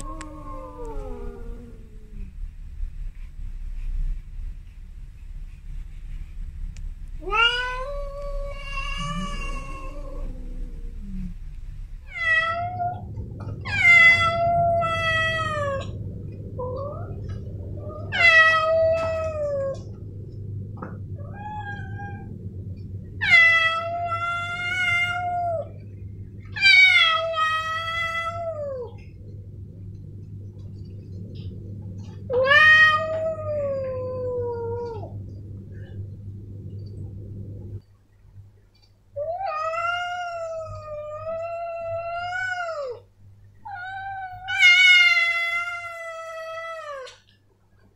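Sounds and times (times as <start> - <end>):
cat yowling: 7.2 - 10.9, 12.1 - 16.0, 17.9 - 19.9, 21.2 - 22.4, 23.2 - 25.8, 26.6 - 29.0, 32.3 - 35.1, 39.2 - 43.0, 43.7 - 47.2
lower cat voice: 7.2 - 11.5.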